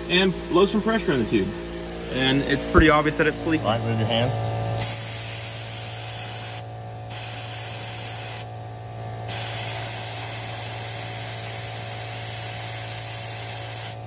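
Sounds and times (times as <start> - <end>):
steady low hum: 0.0 - 14.0
compressed air hissing: 4.8 - 8.5, 9.3 - 14.0.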